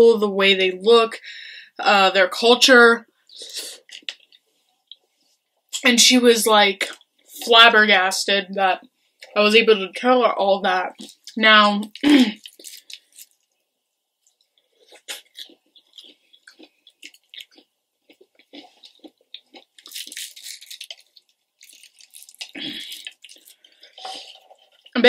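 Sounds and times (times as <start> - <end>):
fried chicken breading crackling: 14.3 - 17.6, 18.2 - 25.0.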